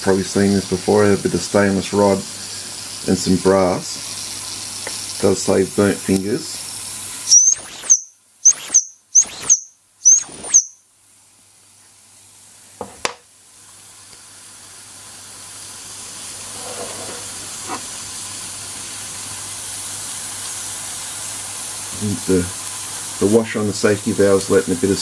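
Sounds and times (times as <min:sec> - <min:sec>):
steam hissing from valve: 0:00.0 - 0:08.8, 0:13.4 - 0:25.0
toy steam engine whistle toots: 0:07.3 - 0:10.8.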